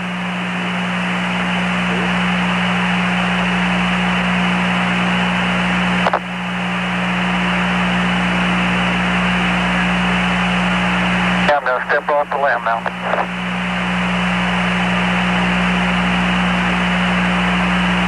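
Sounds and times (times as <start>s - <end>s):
low steady hum: 0.0s - 18.0s
radio static hiss: 0.3s - 3.8s, 4.9s - 18.0s
radio click: 6.0s - 6.3s, 11.6s - 13.3s.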